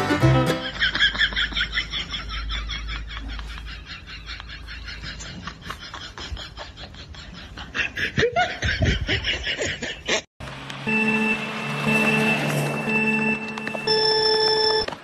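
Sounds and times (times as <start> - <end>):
music with held notes: 0.0 - 0.7
person laughing: 0.6 - 10.3.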